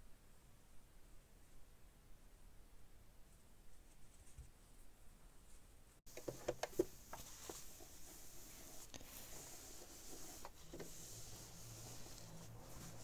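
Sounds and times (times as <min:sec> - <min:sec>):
cloth rubbing: 0:06.8 - 0:13.0.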